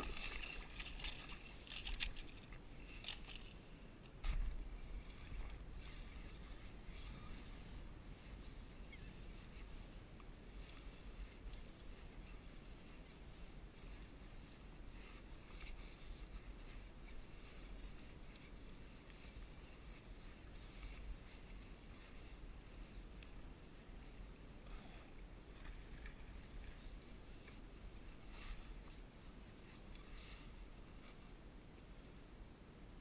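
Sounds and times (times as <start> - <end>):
faint ticks: 8.8 - 23.5, 24.1 - 31.9.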